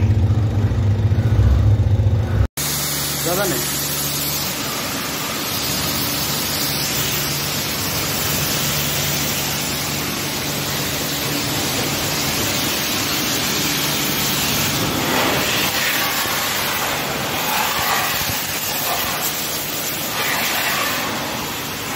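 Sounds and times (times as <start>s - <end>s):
water jet spraying on tiles: 2.6s - 21.9s.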